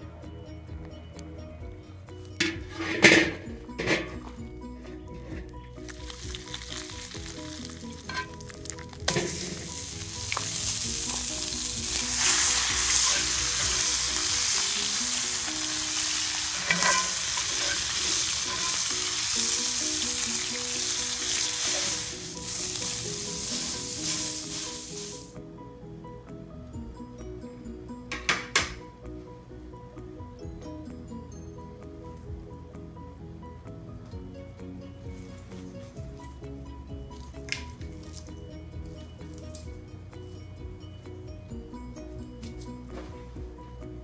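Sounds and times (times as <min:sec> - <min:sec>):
metal spatula scraping pan: 0:02.4 - 0:04.2, 0:07.7 - 0:08.5, 0:09.1 - 0:25.2
meat sizzling in skillet: 0:05.8 - 0:25.3.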